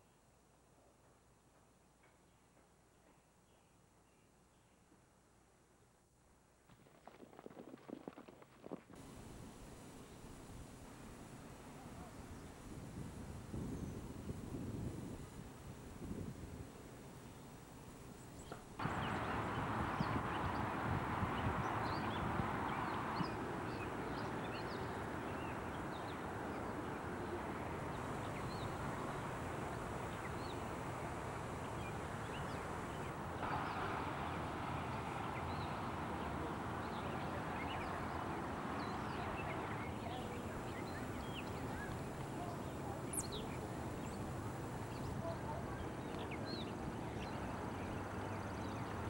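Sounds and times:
steady hiss: 0:09.0 - 0:47.7
birds chirping: 0:18.3 - 0:49.0.

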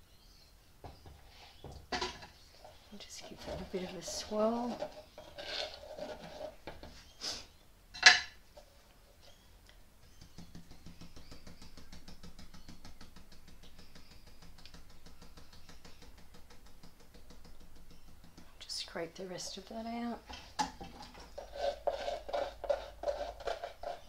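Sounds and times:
stick stirring wet cement: 0:02.5 - 0:06.8, 0:10.1 - 0:24.0.

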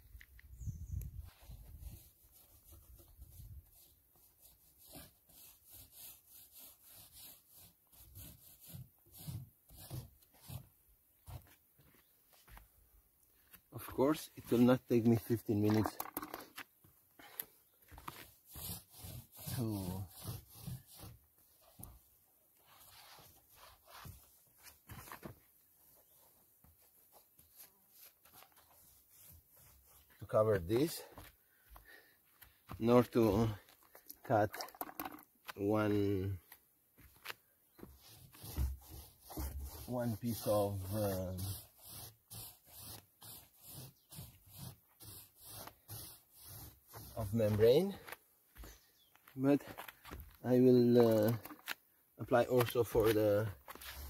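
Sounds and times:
brush strokes spreading primer: 0:01.2 - 0:12.6, 0:13.4 - 0:16.6, 0:17.9 - 0:31.2, 0:32.8 - 0:36.4, 0:37.8 - 0:48.1, 0:52.2 - 0:54.0.

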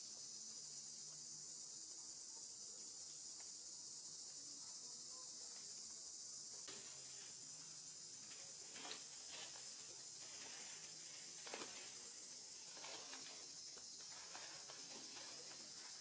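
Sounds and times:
high-pitched insect chorus: 0:00.0 - 0:16.0
dry leaves crackling: 0:06.7 - 0:16.0.

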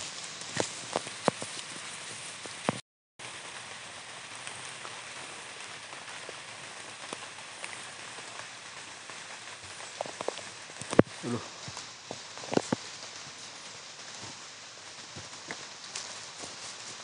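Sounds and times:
faint raindrop ticks: 0:00.0 - 0:17.0
light rain on foliage: 0:00.0 - 0:17.0.

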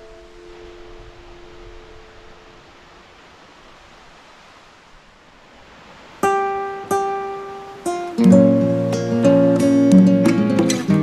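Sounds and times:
faint hiss: 0:00.0 - 0:11.0
acoustic guitar music: 0:06.2 - 0:11.0.

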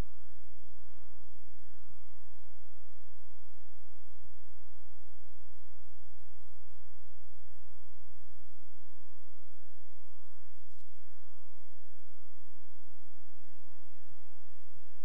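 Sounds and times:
deep electrical hum: 0:00.0 - 0:15.0
faint click: 0:10.6 - 0:11.0.

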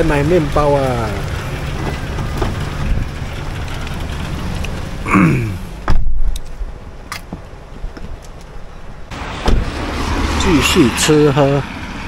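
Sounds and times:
traffic hum: 0:00.0 - 0:12.0
car door slamming: 0:05.8 - 0:06.2, 0:09.4 - 0:09.8.

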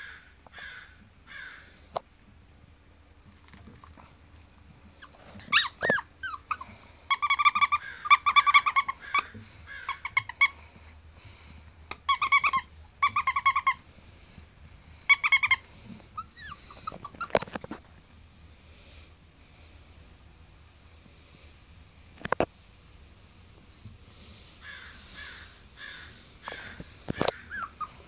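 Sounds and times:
squeaky toy squeaking: 0:05.0 - 0:09.3, 0:09.9 - 0:10.6, 0:11.9 - 0:13.8, 0:15.1 - 0:17.3, 0:27.3 - 0:28.0.

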